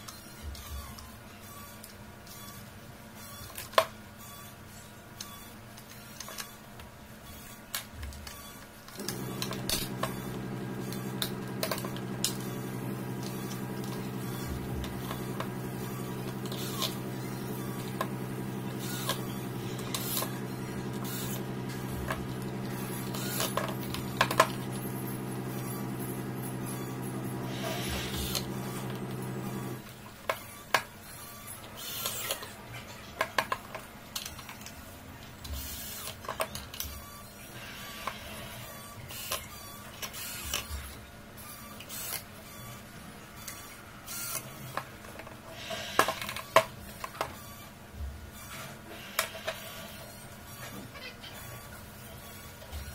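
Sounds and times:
handling noises: 0:09.0 - 0:29.8
steady low hum: 0:09.0 - 0:29.8.

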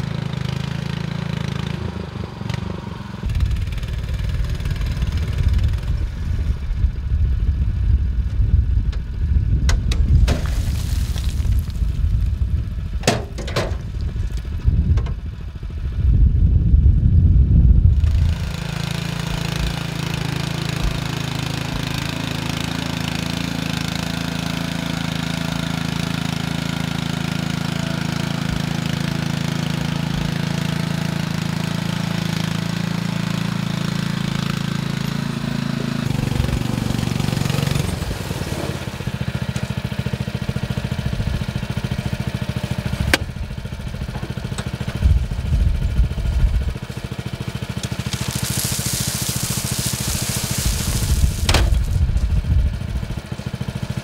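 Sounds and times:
small engine running: 0:00.0 - 0:54.0
gravel pouring out: 0:10.0 - 0:14.6, 0:37.3 - 0:39.5, 0:46.6 - 0:53.7.

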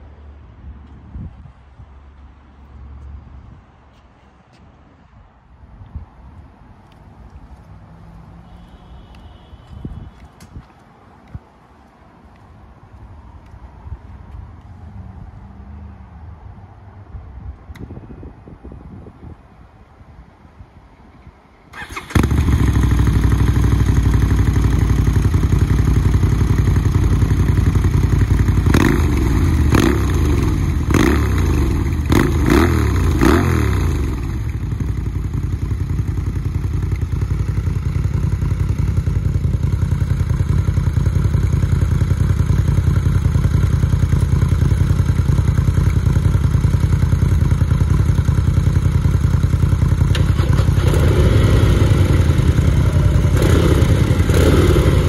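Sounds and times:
motorcycle engine revving: 0:21.8 - 0:55.0.

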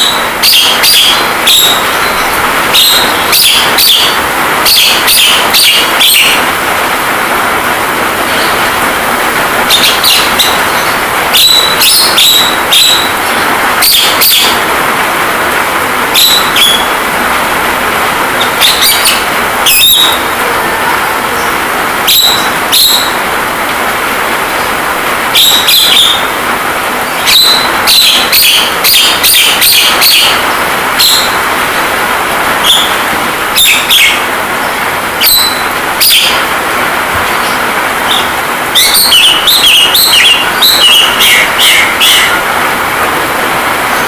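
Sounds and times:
bird chirps and whistles: 0:00.0 - 0:06.4, 0:09.7 - 0:14.6, 0:16.2 - 0:16.9, 0:18.4 - 0:20.3, 0:22.1 - 0:23.2, 0:25.4 - 0:26.3, 0:27.2 - 0:30.4, 0:31.0 - 0:31.4, 0:32.6 - 0:33.0, 0:33.6 - 0:34.2, 0:35.2 - 0:36.4, 0:37.4 - 0:42.3
rain hiss: 0:00.0 - 0:44.0.

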